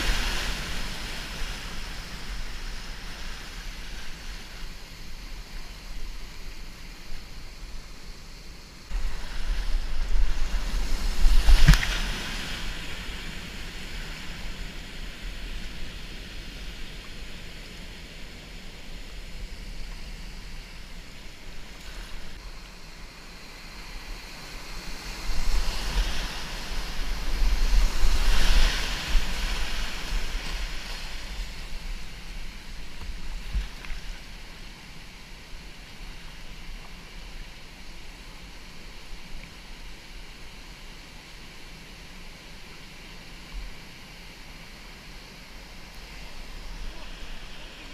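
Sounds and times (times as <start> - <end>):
wind rumble on microphone: 0.0 - 40.6
sharp water splash: 9.4 - 12.9.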